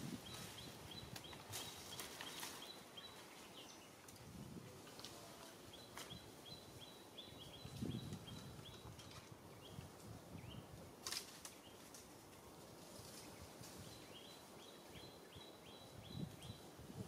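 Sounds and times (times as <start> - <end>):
bird chirping: 5.7 - 9.8, 13.9 - 16.7.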